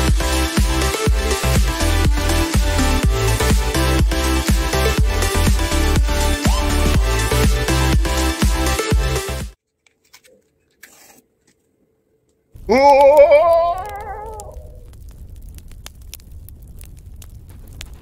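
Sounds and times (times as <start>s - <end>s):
wavering voice-like note: 12.7s - 14.8s.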